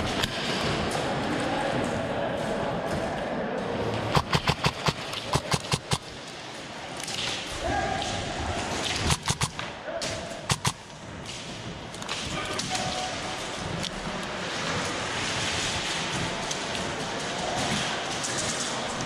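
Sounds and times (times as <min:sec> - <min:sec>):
airsoft gun bursts echoing: 0:04.1 - 0:06.1, 0:09.0 - 0:09.6, 0:10.4 - 0:11.0.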